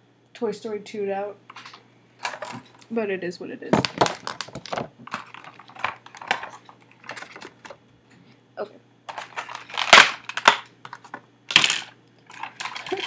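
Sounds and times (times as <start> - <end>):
packaging rustle: 3.8 - 7.8, 9.1 - 11.6, 12.3 - 13.0.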